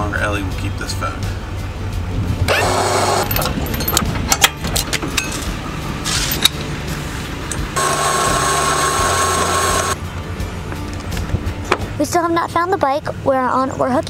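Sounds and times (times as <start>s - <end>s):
small motor whining: 2.5s - 3.3s, 7.8s - 10.0s
metal chains clinking: 3.2s - 5.6s.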